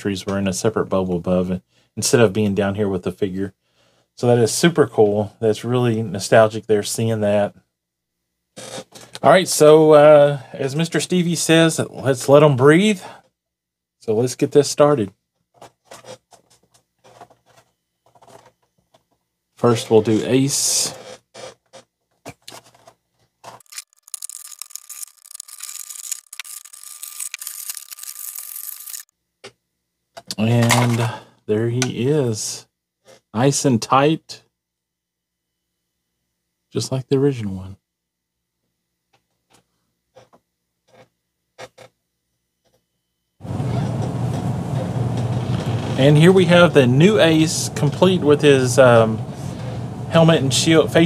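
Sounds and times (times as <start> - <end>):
plastic and card crackling tearing: 23.5 - 29.1.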